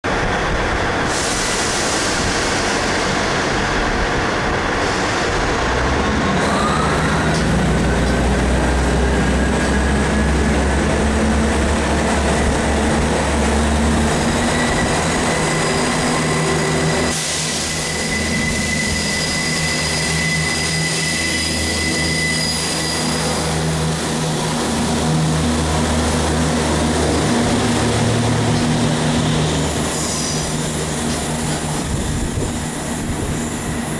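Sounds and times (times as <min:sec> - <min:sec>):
high-pitched wheel squeal: 0:06.3 - 0:07.6, 0:14.1 - 0:23.6, 0:29.2 - 0:33.9.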